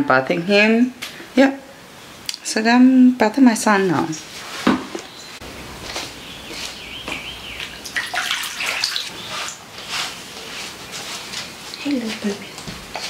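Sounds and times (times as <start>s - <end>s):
water splashing in a plastic tub: 7.6s - 9.6s.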